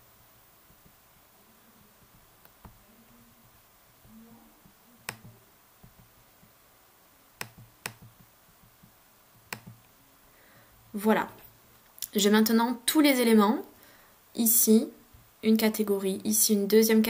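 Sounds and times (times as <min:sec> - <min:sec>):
computer mouse clicks: 0:05.0 - 0:06.5, 0:07.4 - 0:09.9.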